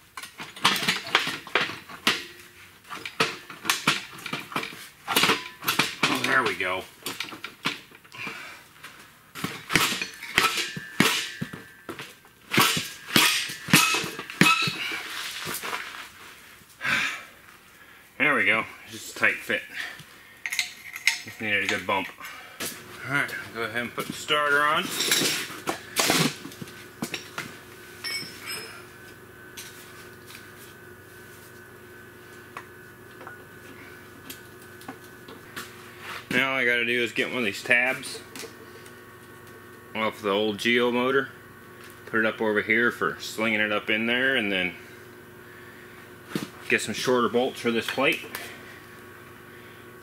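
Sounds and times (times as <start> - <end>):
faint steady hum: 0.0 - 50.0
metal clanks and clinks: 9.7 - 11.7, 12.6 - 14.9, 20.4 - 22.2, 28.0 - 28.8.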